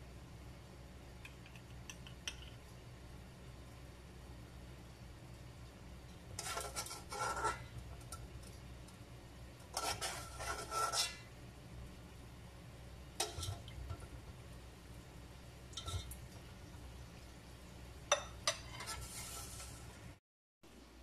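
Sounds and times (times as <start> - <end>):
metal spoon scraping a pot: 6.4 - 8.3, 9.7 - 11.3, 13.2 - 14.1, 15.8 - 16.2, 18.1 - 19.9.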